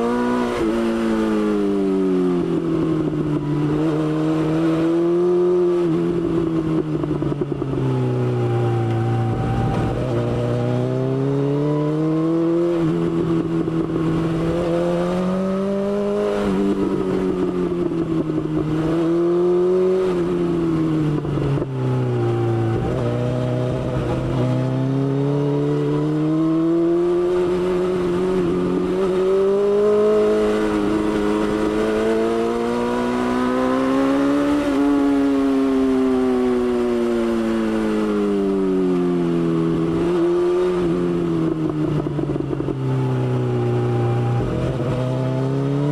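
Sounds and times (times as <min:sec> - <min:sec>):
motorcycle engine revving: 0:00.0 - 0:45.9.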